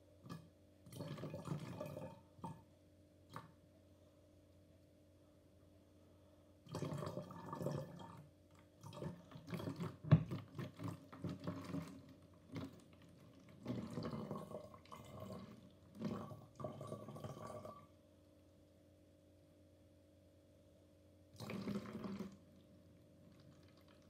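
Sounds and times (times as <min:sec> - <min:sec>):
liquid pouring into plastic container: 0:00.3 - 0:02.6, 0:06.7 - 0:17.9, 0:21.4 - 0:24.0.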